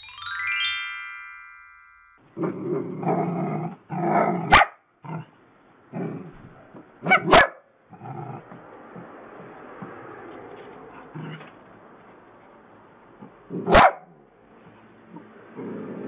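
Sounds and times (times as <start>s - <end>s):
dog barking sharply: 4.5s - 4.8s, 7.0s - 7.7s, 13.7s - 14.1s
small dogs growling: 5.9s - 6.5s, 7.9s - 9.1s, 15.1s - 16.0s.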